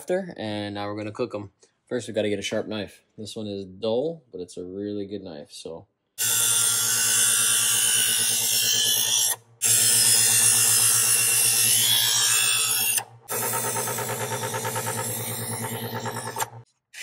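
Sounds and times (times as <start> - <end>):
electric knife sharpener humming: 6.2 - 16.6.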